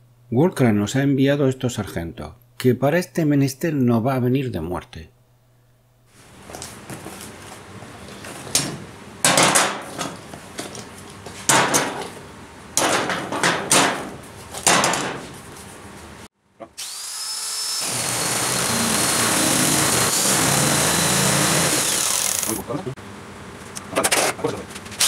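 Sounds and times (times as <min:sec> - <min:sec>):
electric metal cutter whining: 0:16.8 - 0:22.7.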